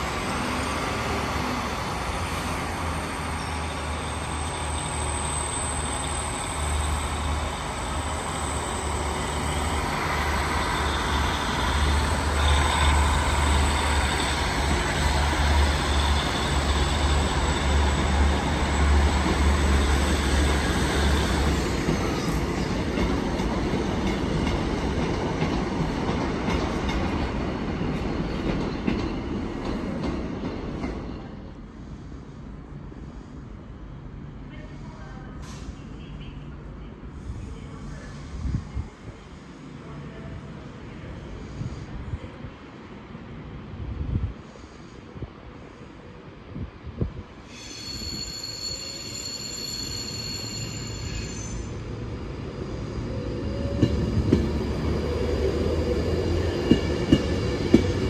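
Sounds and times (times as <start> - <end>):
high wheel squeal: 47.5 - 51.9.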